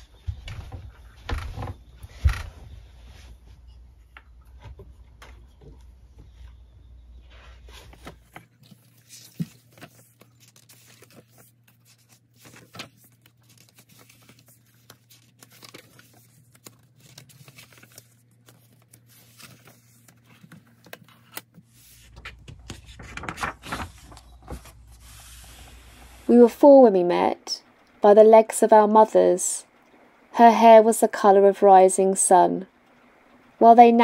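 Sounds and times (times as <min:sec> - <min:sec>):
paper pages turning and rustling: 0:07.3 - 0:26.3.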